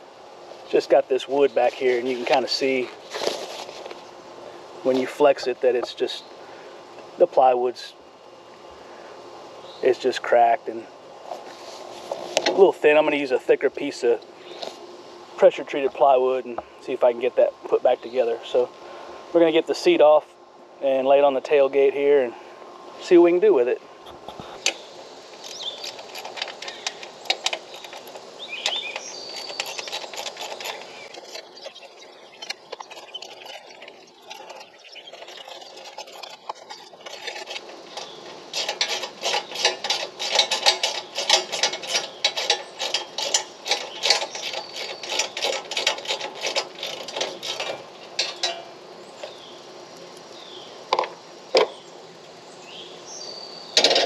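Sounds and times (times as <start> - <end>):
metal parts knocking and rattling: 25.4 - 48.7, 53.8 - 54.0
hand ratchet clicking: 32.4 - 48.6.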